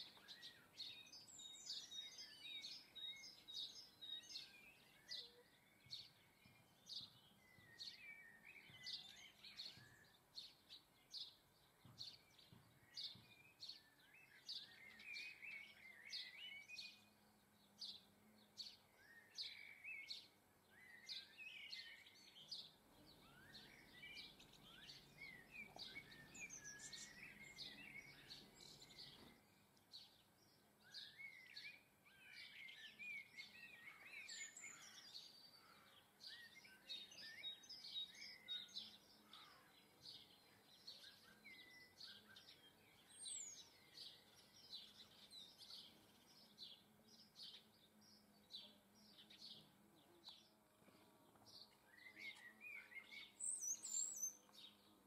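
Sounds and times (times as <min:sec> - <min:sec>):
songbirds chirping: 0:00.0 - 0:55.0.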